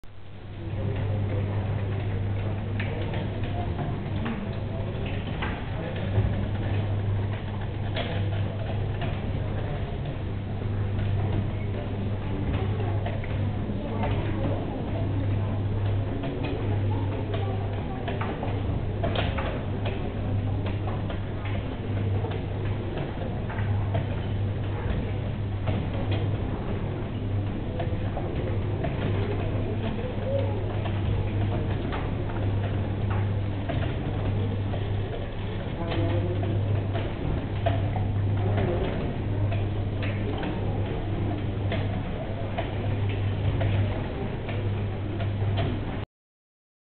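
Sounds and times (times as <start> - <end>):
low machine hum: 0.0 - 46.1
clicks and knocks of turning wheels: 10.9 - 46.0.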